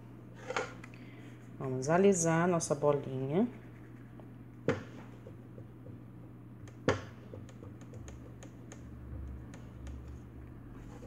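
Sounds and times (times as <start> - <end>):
low steady hum: 0.0 - 11.0
sharp knocks on hard surface: 4.7 - 5.0, 6.8 - 7.5.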